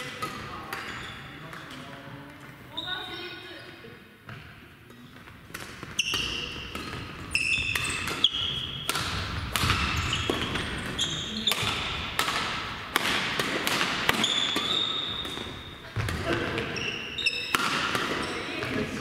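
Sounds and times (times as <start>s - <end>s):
shoes squeaking on gym floor: 0.7s - 1.7s, 2.7s - 3.8s, 5.8s - 9.0s, 9.6s - 12.0s, 14.1s - 18.9s
racket striking shuttlecock: 5.5s - 18.8s.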